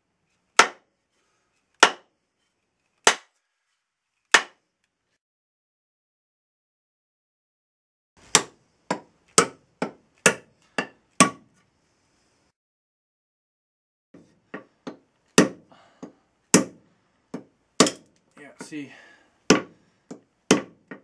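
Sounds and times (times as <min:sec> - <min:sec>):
hammer striking axe head: 0:00.6 - 0:00.8, 0:01.8 - 0:02.1, 0:08.3 - 0:11.4, 0:14.5 - 0:18.7, 0:19.5 - 0:21.0.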